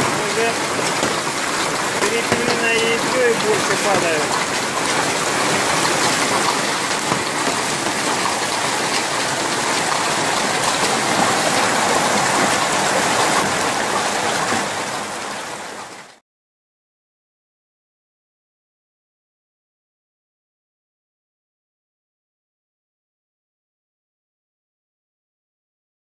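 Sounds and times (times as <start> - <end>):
hail and rain clattering: 0.0 - 16.2.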